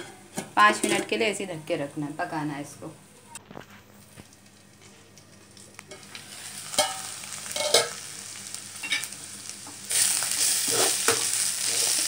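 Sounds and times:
steel utensils clanking on pan: 0.0s - 1.2s, 5.9s - 8.0s
leaves and onions sizzling in a wok: 3.5s - 12.0s.

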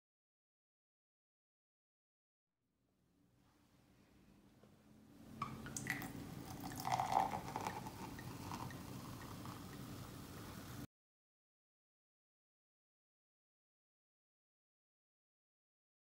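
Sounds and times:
champagne pouring into glass: 5.6s - 10.2s.

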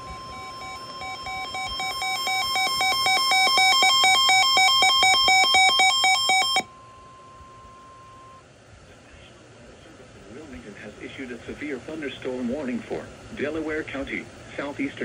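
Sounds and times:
rapid pulsed beeping: 0.0s - 8.4s
steady alarm tone: 0.0s - 8.4s.

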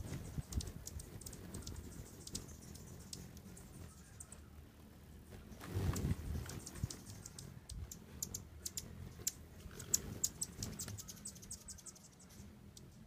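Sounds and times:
hummingbirds chipping: 0.0s - 13.0s.

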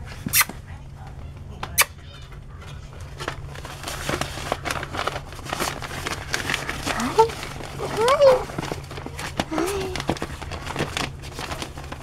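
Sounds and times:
newspaper rustling and crackling: 2.6s - 12.0s.

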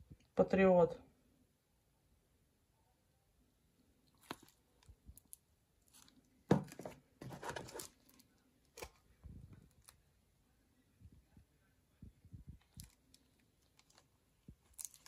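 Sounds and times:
plastic crackling and crinkling: 4.0s - 10.1s, 12.4s - 15.0s.

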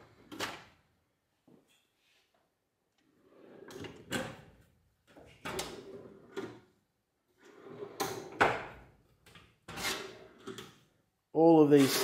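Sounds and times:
tool cabinet drawer rolling: 3.1s - 4.4s, 5.1s - 6.7s, 7.4s - 8.9s.

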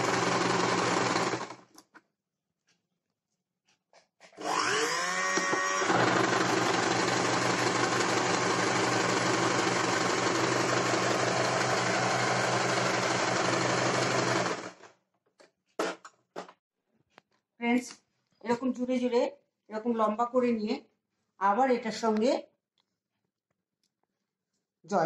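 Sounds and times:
sewing machine motor whine: 0.0s - 1.6s, 4.4s - 14.8s.

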